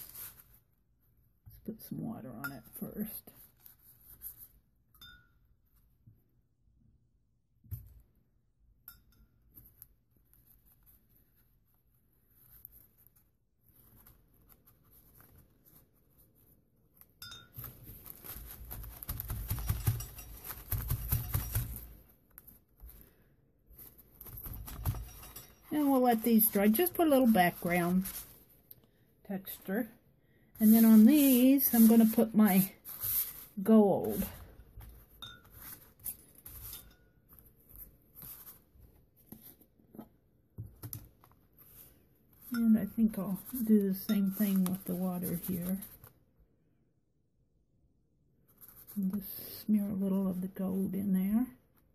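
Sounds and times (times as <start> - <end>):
paper rustling: 0.0 - 0.6, 17.6 - 28.5, 30.6 - 39.6
hands rubbing and patting paper: 0.0 - 0.7, 17.6 - 23.0, 23.7 - 28.5, 30.6 - 39.6, 43.2 - 46.1
paintbrush scratching on paper: 30.6 - 34.3.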